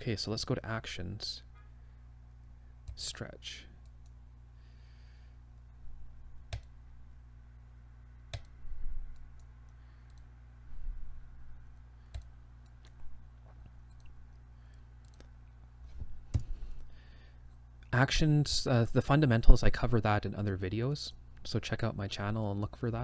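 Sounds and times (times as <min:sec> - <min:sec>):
low electrical hum: 0:00.0 - 0:23.0
computer mouse clicking: 0:06.5 - 0:06.7, 0:08.3 - 0:08.5, 0:09.1 - 0:10.3, 0:12.1 - 0:13.0, 0:15.0 - 0:15.3.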